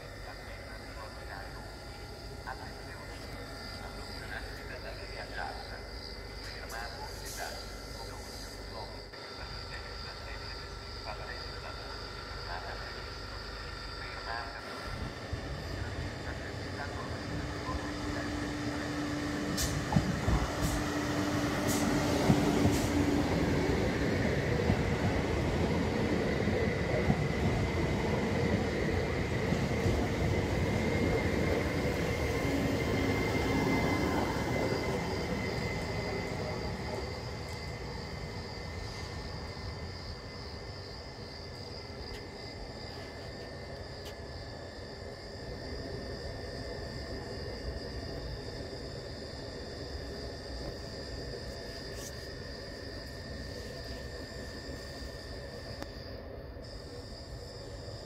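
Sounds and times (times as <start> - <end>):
train wheels rumbling: 14.7 - 43.9.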